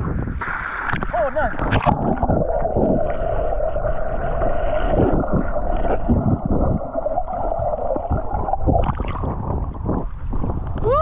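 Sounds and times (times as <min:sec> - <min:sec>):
low thumps and sloshes: 0:00.0 - 0:11.0
underwater water hiss: 0:02.7 - 0:08.6.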